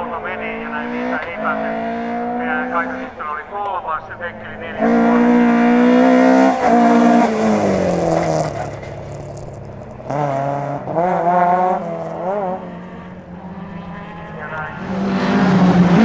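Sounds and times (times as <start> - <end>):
rally car engine revving: 0.0 - 16.0.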